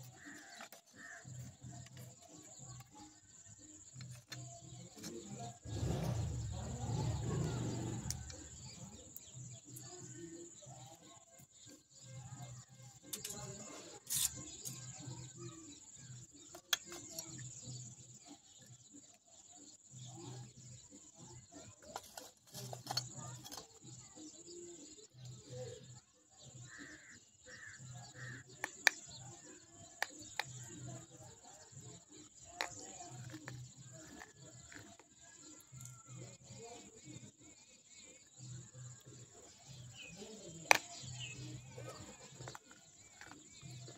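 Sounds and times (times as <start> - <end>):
clay pieces snapping and crunching: 40.7 - 41.2.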